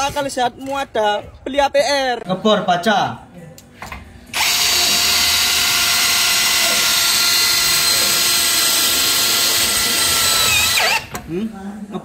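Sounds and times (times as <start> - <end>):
drill bit grinding metal: 4.4 - 11.1
drill motor whine: 4.4 - 11.1.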